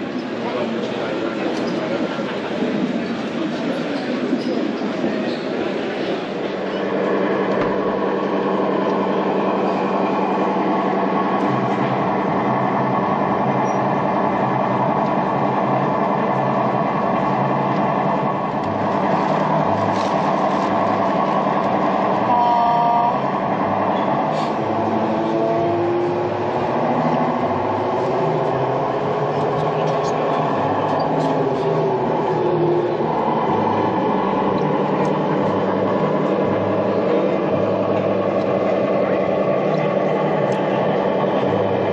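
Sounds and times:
diesel engine sound from speaker: 0:00.0 - 0:41.9
two-tone horn: 0:22.2 - 0:23.2.

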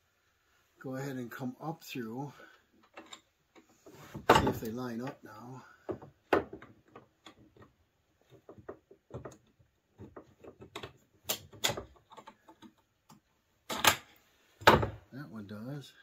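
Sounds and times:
metal clicks and knocks: 0:02.8 - 0:05.2, 0:05.8 - 0:15.0.

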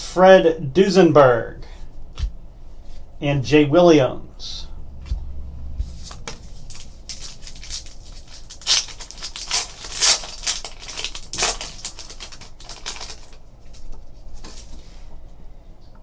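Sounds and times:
foil wrapper tearing and crinkling: 0:06.6 - 0:14.5.

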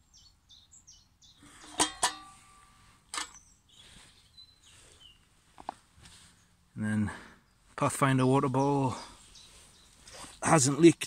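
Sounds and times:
small bird chirping: 0:00.0 - 0:01.8, 0:03.0 - 0:06.6, 0:08.9 - 0:10.6
metal mess tins clinking: 0:01.5 - 0:03.4.

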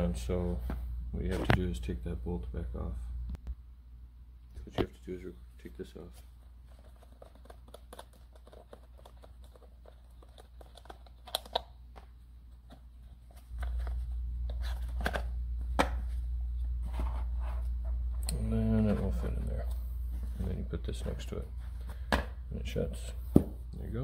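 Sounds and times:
low steady hum: 0:00.0 - 0:24.0
small clicks taps and scrapes: 0:06.7 - 0:12.1.

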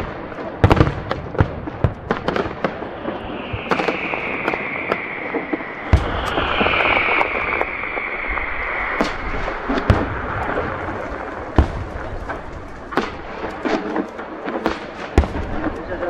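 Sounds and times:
firework shells bursting: 0:00.0 - 0:15.9
small firework pops: 0:00.0 - 0:16.0
steady hiss: 0:02.0 - 0:16.0.

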